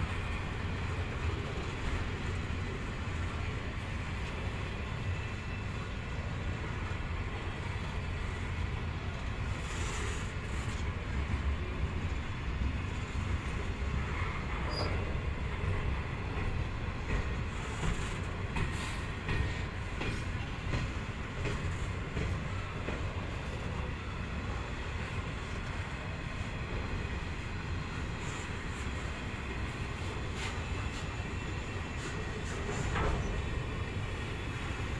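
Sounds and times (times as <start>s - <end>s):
train wheels rumbling on rail: 0.0s - 34.9s
faint wheel squeal: 14.3s - 15.2s.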